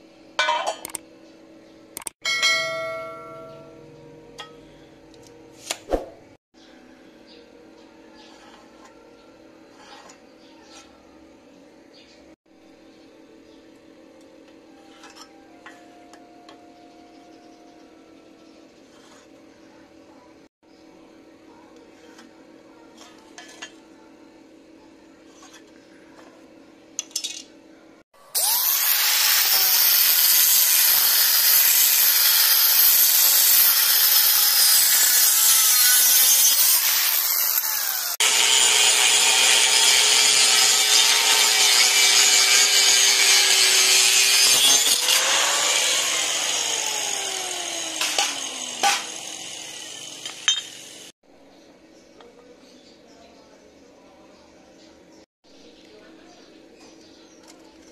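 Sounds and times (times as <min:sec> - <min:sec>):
sharp clicks: 0:02.0 - 0:02.2
angle grinder cutting steel: 0:28.2 - 0:51.1.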